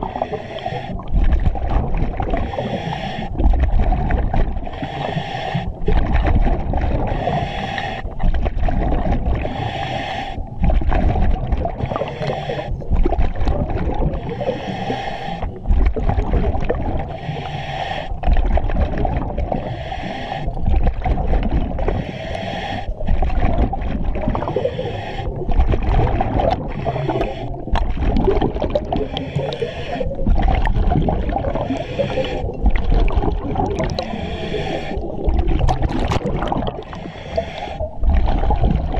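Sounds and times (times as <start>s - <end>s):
exhaled air bubbling underwater: 0.0s - 38.9s
regulator hiss on inhale: 2.4s - 3.3s, 4.7s - 5.8s, 7.1s - 8.0s, 9.4s - 10.4s, 11.8s - 12.9s, 14.2s - 15.5s, 17.1s - 18.2s, 19.6s - 20.6s, 21.9s - 23.1s, 24.4s - 25.5s, 26.7s - 27.8s, 29.0s - 30.2s, 31.6s - 32.5s, 33.9s - 35.2s, 36.8s - 38.0s.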